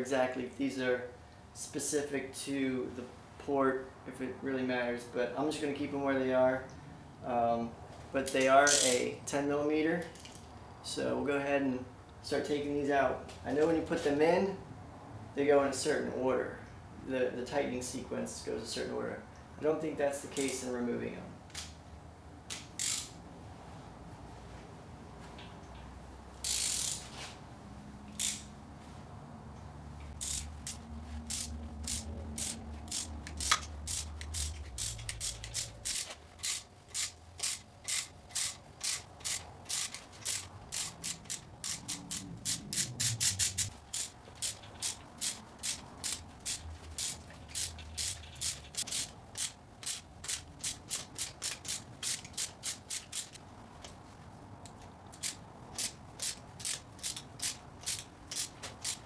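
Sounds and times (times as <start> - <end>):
socket ratchet clicking: 8.6 - 9.0, 22.5 - 23.2, 26.4 - 27.0, 28.1 - 28.5, 30.2 - 53.4, 54.7 - 59.0.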